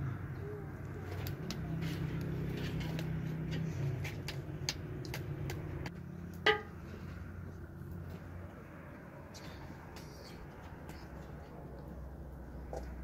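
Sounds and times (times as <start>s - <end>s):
wood fire crackling: 0.8s - 6.6s.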